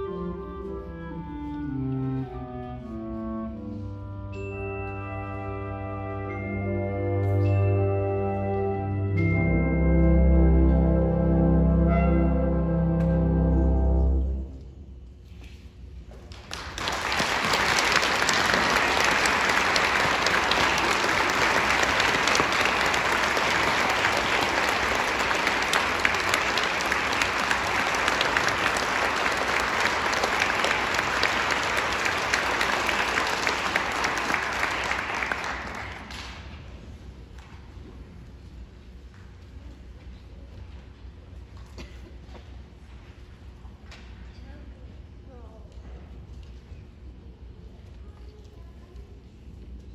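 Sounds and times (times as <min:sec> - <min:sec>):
audience applauding: 0:16.3 - 0:36.5.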